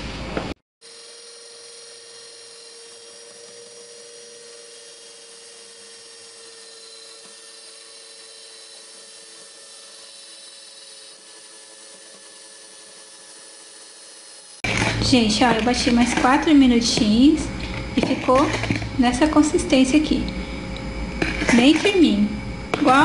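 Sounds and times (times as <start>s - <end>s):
stand mixer motor whine: 0.0s - 23.0s.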